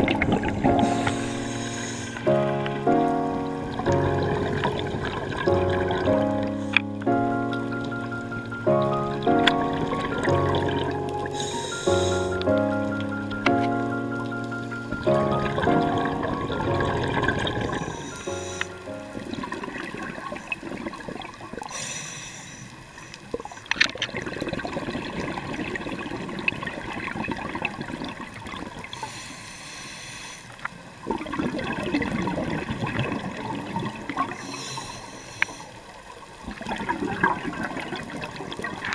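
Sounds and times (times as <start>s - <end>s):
exhaled bubbles rushing: 0.0s - 21.7s, 23.3s - 29.0s, 31.0s - 34.5s, 36.1s - 38.9s
regulator hissing inhale: 0.8s - 2.3s, 11.4s - 12.4s, 17.9s - 18.8s, 21.7s - 23.7s, 29.0s - 30.7s, 34.4s - 35.8s.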